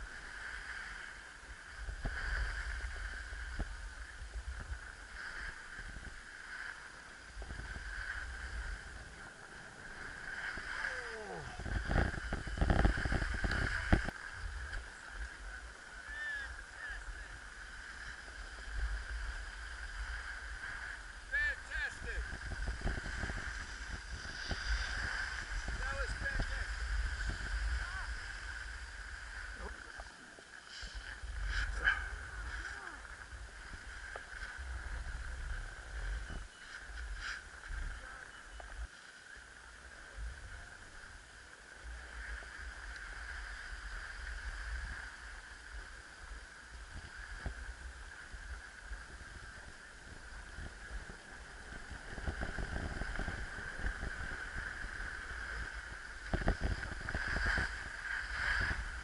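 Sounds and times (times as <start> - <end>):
wind rumbling on microphone: 0.0 - 59.0
snowboard scraping over snow: 21.7 - 32.8.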